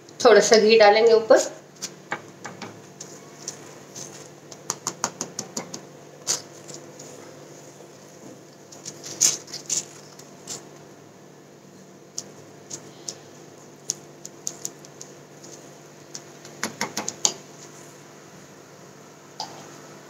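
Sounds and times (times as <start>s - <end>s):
metal spoon tapping on flatbread: 4.5s - 5.8s.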